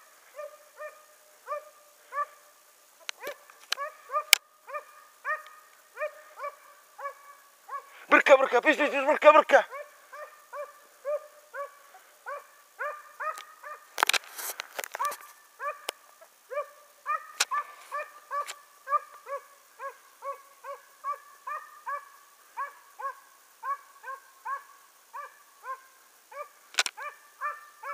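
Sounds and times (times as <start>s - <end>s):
hound baying with yelping barks: 0.3s - 2.5s, 3.1s - 8.0s, 9.6s - 13.9s, 15.0s - 27.9s
sharp clicks: 26.7s - 27.0s.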